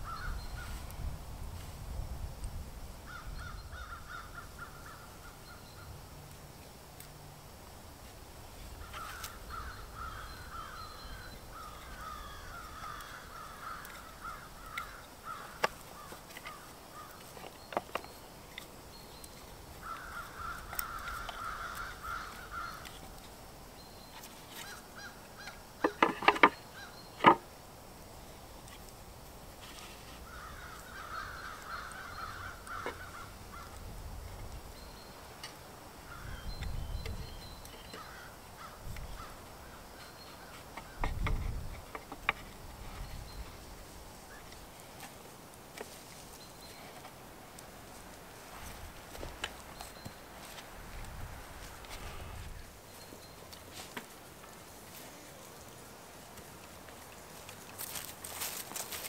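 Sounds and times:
crows cawing: 0.0 - 0.4, 3.1 - 5.1, 8.8 - 17.2, 19.8 - 23.0, 30.2 - 33.8, 38.0 - 39.4.

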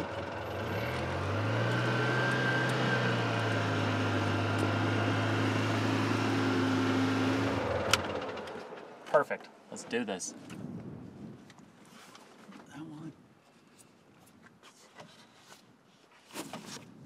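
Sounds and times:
utility vehicle engine droning: 0.0 - 9.0.

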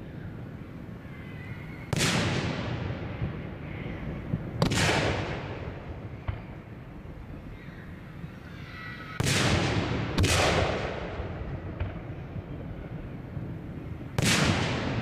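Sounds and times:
firework shells booming: 1.9 - 6.6, 9.2 - 12.2, 13.3 - 15.0
faint firework crack: 1.9 - 6.7, 9.2 - 15.0.

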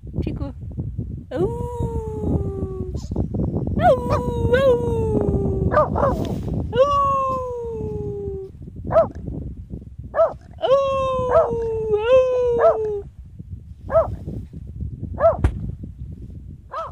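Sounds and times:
dog howling: 3.8 - 6.2, 10.6 - 13.0
dog yipping: 10.2 - 10.4, 13.9 - 14.1, 15.2 - 15.4
sharp knock: 15.4 - 15.6.

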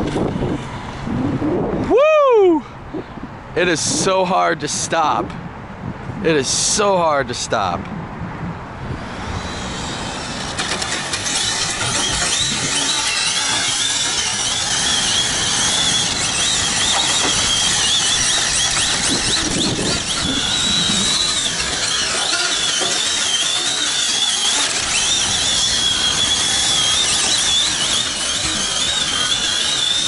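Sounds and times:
road and wind noise: 0.0 - 30.0
rc car motor whine: 8.9 - 30.0.

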